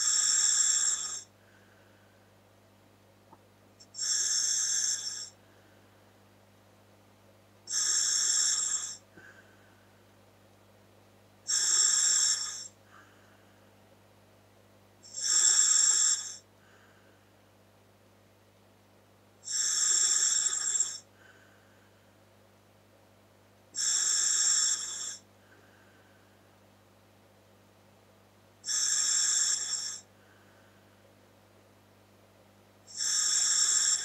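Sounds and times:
hissing breaths through scuba regulator: 0:04.0 - 0:05.3.

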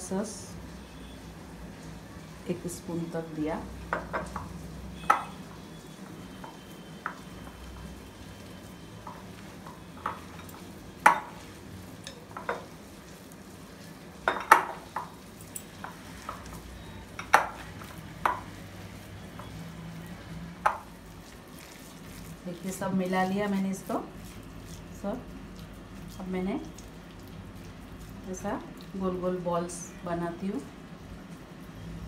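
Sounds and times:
hands mixing food in bowl: 0:20.6 - 0:29.3.

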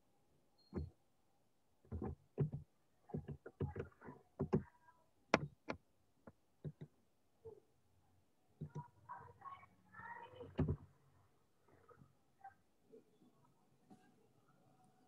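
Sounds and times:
soft knocks and clicks: 0:01.9 - 0:04.7.

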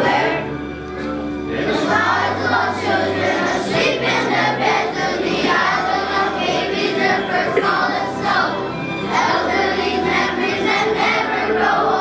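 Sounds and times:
children's choir singing: 0:00.0 - 0:12.0
instrumental accompaniment: 0:00.0 - 0:12.0.

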